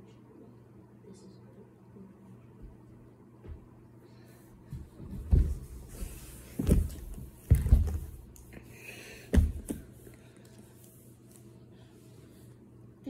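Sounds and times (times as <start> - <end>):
faint low hum: 0.0 - 13.0
dull knocks and bumps: 4.7 - 5.8, 6.5 - 8.2.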